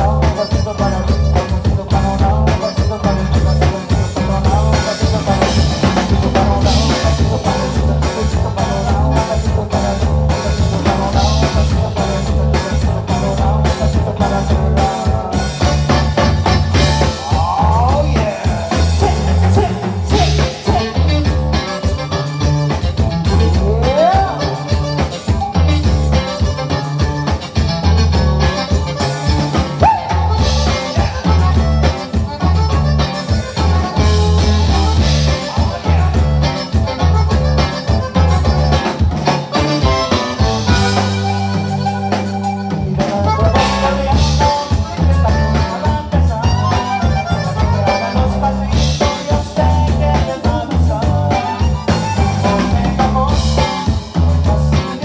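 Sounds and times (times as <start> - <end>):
bass: 0.0 - 55.0
button accordion: 0.0 - 55.0
drum kit beat: 0.0 - 55.0
strummed guitars: 0.0 - 55.0.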